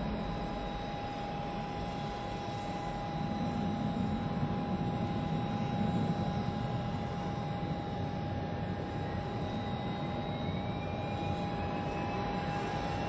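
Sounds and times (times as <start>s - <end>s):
jet engines rumbling and whining: 0.0s - 13.0s.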